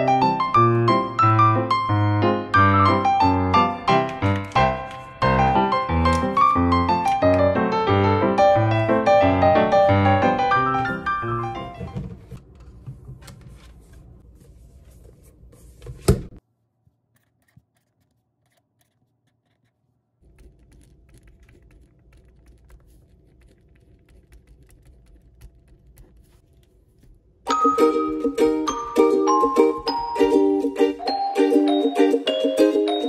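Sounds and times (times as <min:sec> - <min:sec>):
pen scratching on paper: 0:17.2 - 0:27.1.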